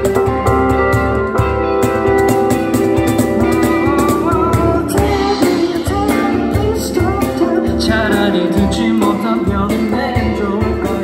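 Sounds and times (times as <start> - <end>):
cajon beat: 0.0 - 11.0
keyboard chords: 0.0 - 11.0
person singing: 3.1 - 11.0.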